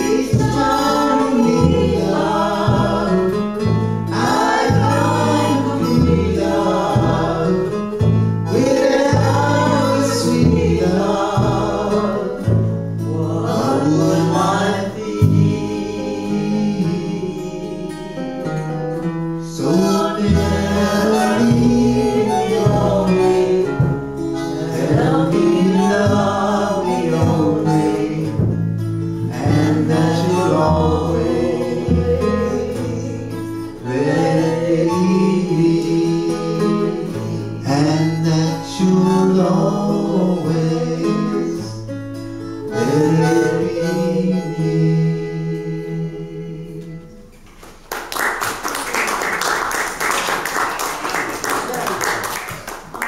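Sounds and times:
walking bass line: 0:00.0 - 0:17.9, 0:18.6 - 0:42.1
harmonica: 0:00.0 - 0:47.3
strummed acoustic guitar: 0:00.0 - 0:47.6
audience applause: 0:47.7 - 0:53.0.

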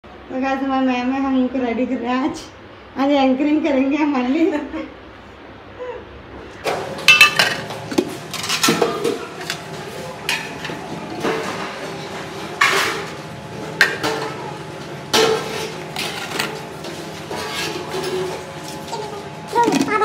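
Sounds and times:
steel dishes clinking: 0:07.1 - 0:07.7.

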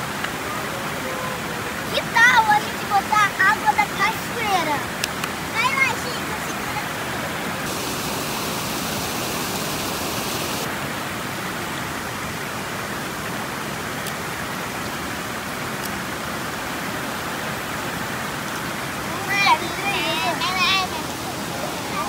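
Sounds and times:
water cascading over rock: 0:00.0 - 0:22.0.

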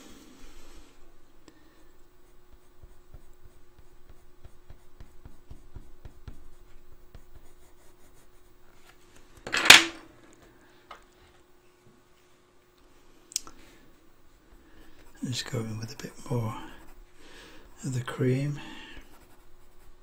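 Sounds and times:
faint steady hum: 0:00.0 - 0:20.0
coloured pencil scratching on paper: 0:02.2 - 0:08.6, 0:14.8 - 0:17.0, 0:19.0 - 0:20.0.

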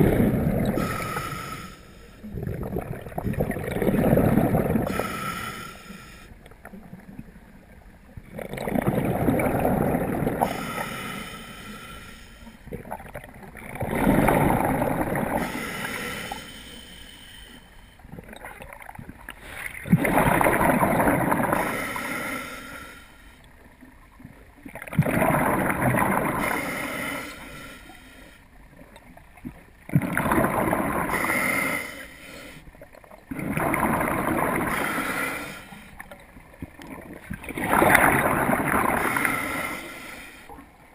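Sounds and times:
gurgling exhaled bubbles: 0:00.0 - 0:05.7, 0:08.3 - 0:11.0, 0:12.7 - 0:16.0, 0:18.1 - 0:21.8, 0:24.7 - 0:26.8, 0:29.5 - 0:31.6, 0:33.2 - 0:35.6, 0:36.6 - 0:39.8
regulator inhale hiss: 0:00.8 - 0:02.3, 0:04.9 - 0:06.4, 0:10.4 - 0:12.6, 0:15.4 - 0:18.0, 0:21.5 - 0:23.4, 0:26.4 - 0:28.5, 0:34.6 - 0:36.0, 0:39.0 - 0:40.6.

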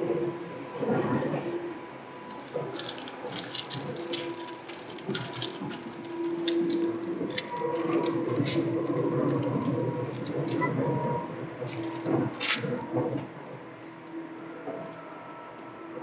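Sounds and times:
electric train motor hum: 0:00.0 - 0:16.0
train wheels rumbling: 0:01.2 - 0:16.0
scattered clicks: 0:02.3 - 0:13.2.

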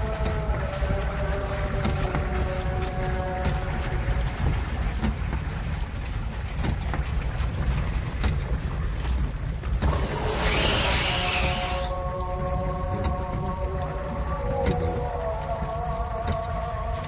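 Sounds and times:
loud hiss: 0:10.3 - 0:11.9.

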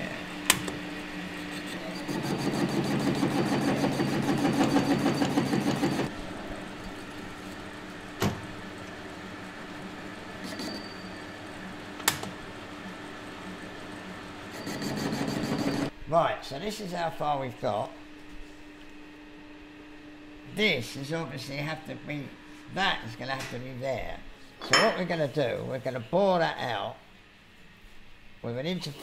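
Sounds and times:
lathe running: 0:00.2 - 0:15.9
lathe cutting metal: 0:01.8 - 0:06.1.

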